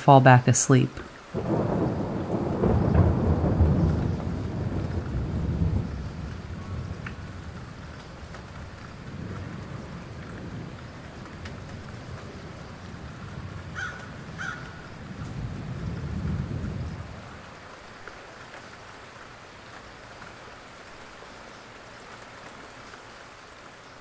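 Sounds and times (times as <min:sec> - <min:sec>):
rain patter: 0:00.0 - 0:24.0
low roll of thunder: 0:01.4 - 0:17.6.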